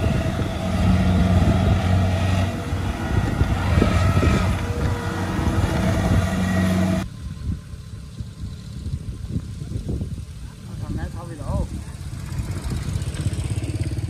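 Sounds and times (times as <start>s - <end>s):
diesel engine running: 0.0s - 9.0s.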